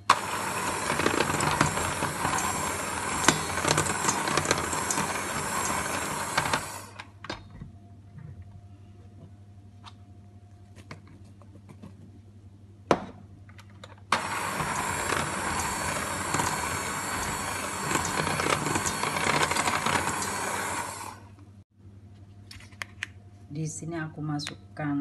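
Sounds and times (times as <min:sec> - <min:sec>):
electric hand mixer whirring: 0:00.0 - 0:07.0, 0:14.1 - 0:21.4.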